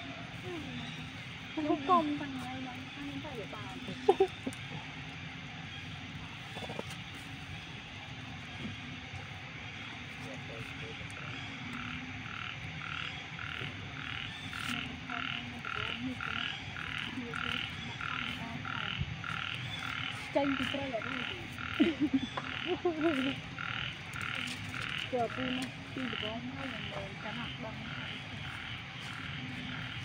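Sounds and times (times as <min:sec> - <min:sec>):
frogs croaking: 0:00.0 - 0:30.0.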